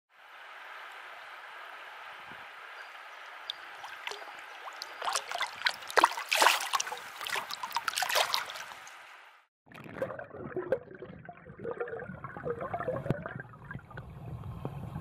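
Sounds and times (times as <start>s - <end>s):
creek water flowing: 0.2s - 9.4s
fish splashing in a net: 3.5s - 9.0s.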